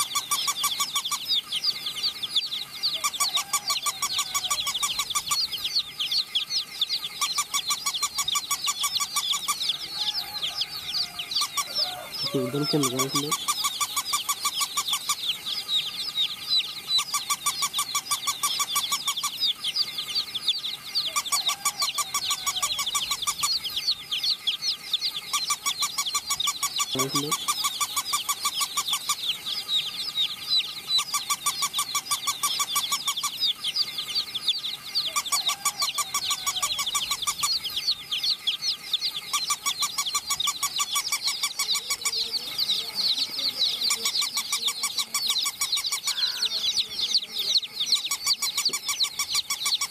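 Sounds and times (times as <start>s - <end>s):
chicks peeping: 0.0s - 49.9s.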